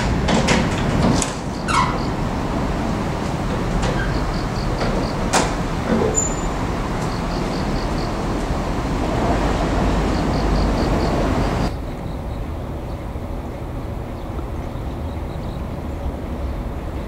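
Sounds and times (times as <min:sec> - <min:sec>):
excavator machinery noise: 0:00.0 - 0:11.8.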